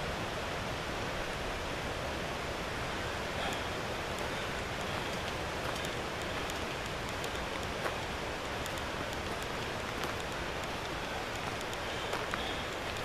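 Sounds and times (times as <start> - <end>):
steady rushing hiss: 0.0 - 13.0.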